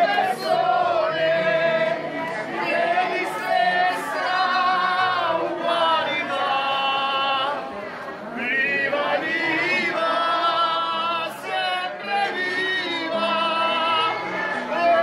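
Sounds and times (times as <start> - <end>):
group singing unaccompanied: 0.0 - 15.0.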